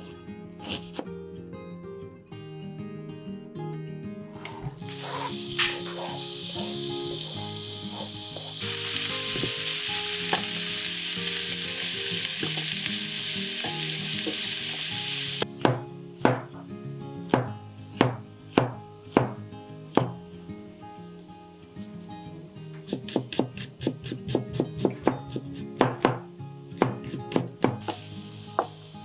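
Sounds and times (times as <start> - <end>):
onion sizzling in frying pan: 4.8 - 15.5, 27.8 - 29.0
knife chopping on cutting board: 17.4 - 19.4, 22.9 - 26.2, 26.8 - 28.0.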